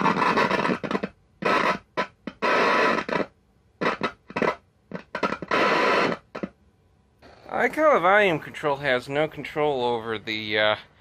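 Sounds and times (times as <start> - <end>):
radio static bursts: 0.0 - 6.5.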